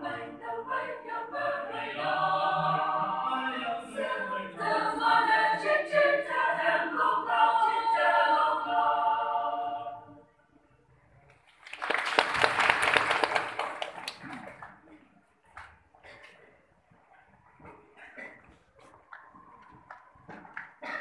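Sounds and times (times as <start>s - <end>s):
choir singing: 0.0s - 10.3s.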